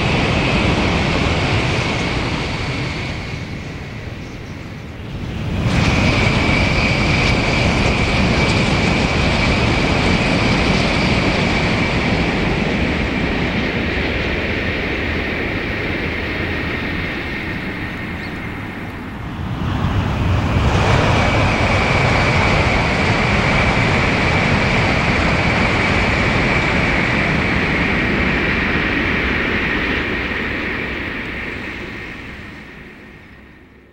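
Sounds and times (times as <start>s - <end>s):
bullet train rushing past: 0.0s - 33.9s.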